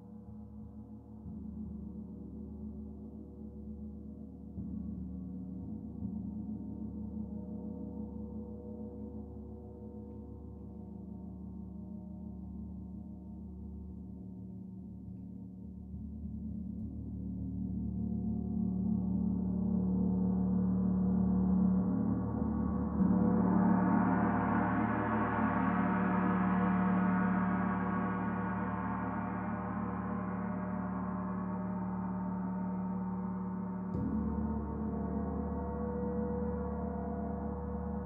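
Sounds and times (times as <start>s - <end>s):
shimmering gong overtones: 22.0s - 38.0s.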